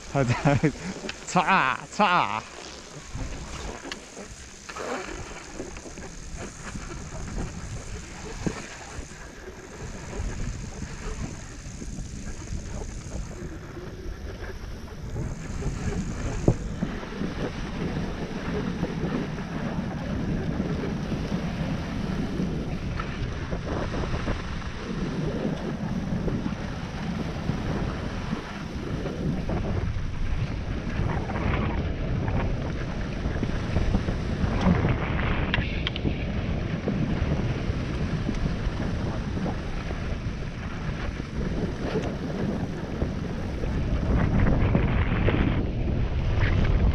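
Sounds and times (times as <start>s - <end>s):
skis hissing over snow: 0.0s - 29.7s
wind rushing over microphone: 0.0s - 46.9s.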